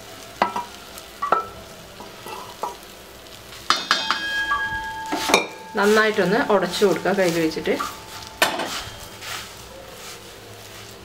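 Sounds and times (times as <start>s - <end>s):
metal vessel ringing: 1.2s - 1.6s, 3.7s - 9.2s
spatula knocking metal pan: 3.7s - 5.6s
wooden spatula stirring rice: 5.0s - 11.0s.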